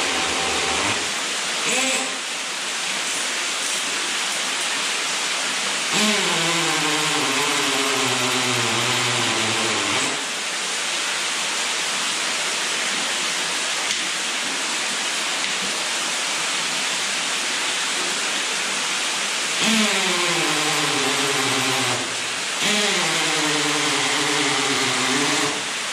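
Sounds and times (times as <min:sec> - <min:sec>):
cordless drill boring into rock: 0:00.0 - 0:01.1, 0:05.9 - 0:10.3, 0:19.6 - 0:25.8
falling water rushing: 0:00.0 - 0:25.9.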